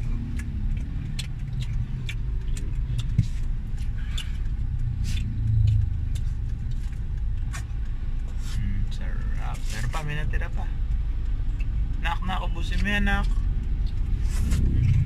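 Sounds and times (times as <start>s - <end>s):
street traffic rumble: 0.0s - 15.0s
motorcycle passing: 13.8s - 15.0s.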